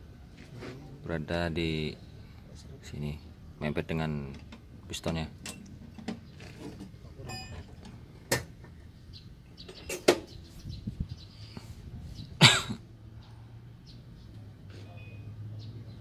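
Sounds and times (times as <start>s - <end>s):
person coughing: 12.4s - 12.8s.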